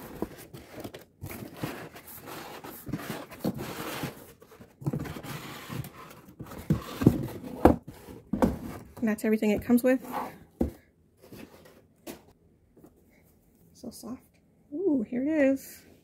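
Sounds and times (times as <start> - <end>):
packaging rustling and scraping: 0.0 - 9.0.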